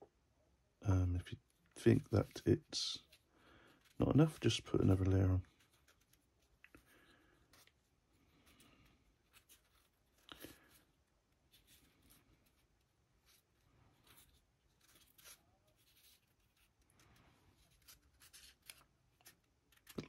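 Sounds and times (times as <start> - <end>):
brush scratching on figure: 7.4 - 19.4.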